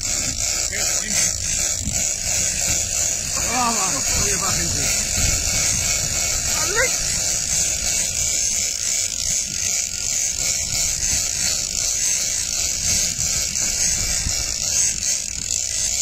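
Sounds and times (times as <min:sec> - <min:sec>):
fishing reel buzzing: 0:00.0 - 0:16.0
wind noise on microphone: 0:00.0 - 0:16.0.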